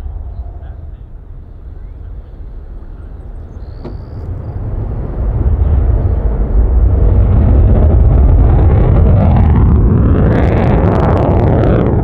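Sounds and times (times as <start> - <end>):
deep jet rumble: 0.0 - 12.0.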